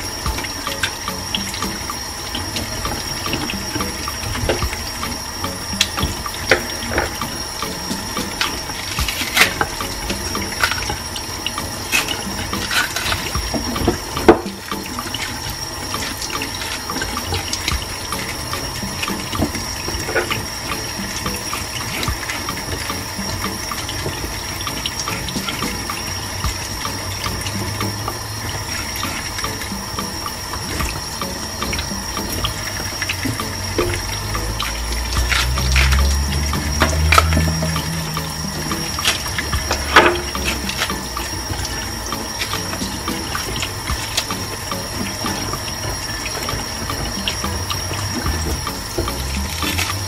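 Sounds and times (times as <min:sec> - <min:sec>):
bananas peeled and handled: 0:31.8 - 0:50.0.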